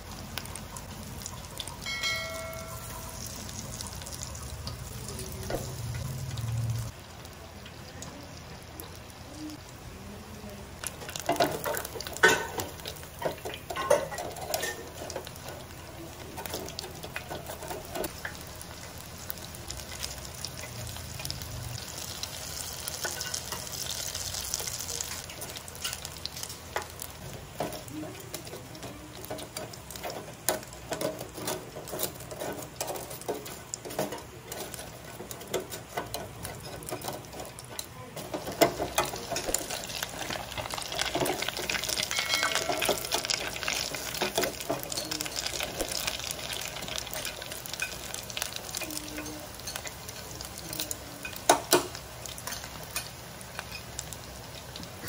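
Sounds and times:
deep-frying sizzle: 0.0 - 55.0
metal tongs scraping basket: 28.5 - 46.1.

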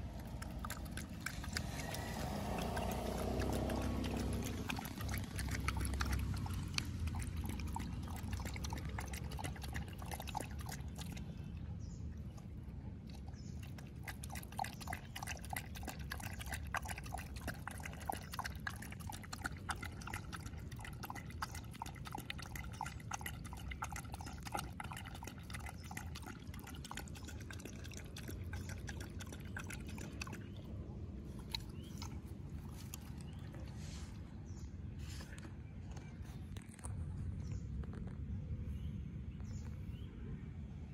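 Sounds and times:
dog lapping water: 0.0 - 35.4.

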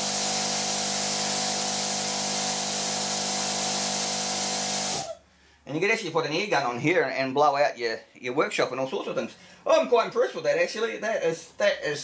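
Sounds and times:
air compressor humming: 0.0 - 5.2
compressed air hissing: 0.0 - 5.2.

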